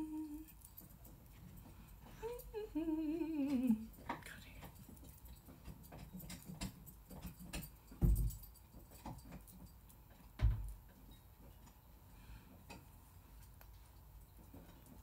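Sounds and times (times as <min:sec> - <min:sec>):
woman humming: 0:00.0 - 0:00.6, 0:02.2 - 0:04.0.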